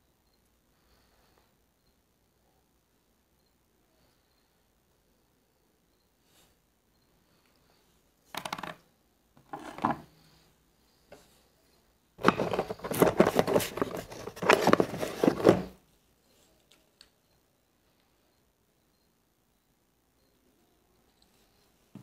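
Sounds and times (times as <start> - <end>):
small parts knocking on wooden table: 8.3 - 8.8, 9.4 - 10.0.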